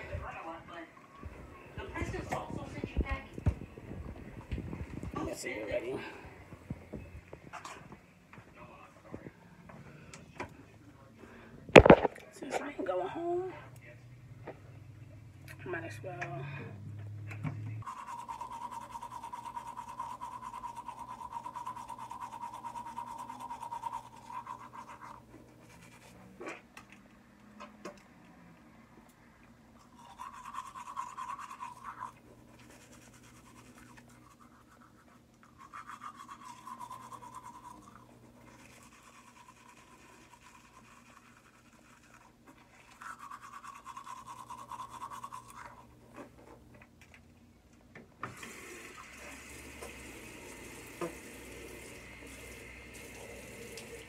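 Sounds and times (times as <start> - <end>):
teeth brushing: 17.8 - 26.6, 29.8 - 45.9.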